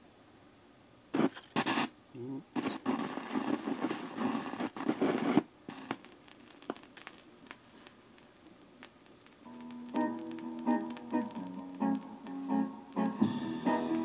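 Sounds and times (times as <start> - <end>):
stylus scratching and handling noise: 1.2 - 1.9
vinyl crackle and clicks: 1.2 - 14.0
music from record: 2.6 - 6.8, 9.4 - 14.0.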